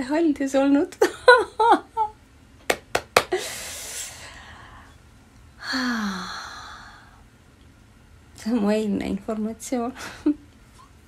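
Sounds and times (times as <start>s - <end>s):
woman's voice: 0.0s - 1.0s, 8.4s - 10.3s.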